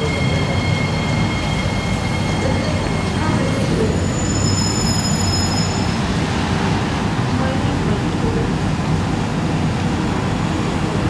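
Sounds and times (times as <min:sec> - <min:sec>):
high-pitched brake squeals: 0:00.0 - 0:06.2
train rumbling: 0:00.0 - 0:11.0.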